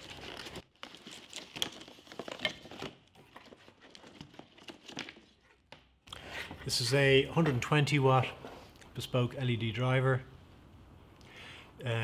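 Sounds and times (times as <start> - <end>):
cardboard packaging rustling: 0.0 - 5.7.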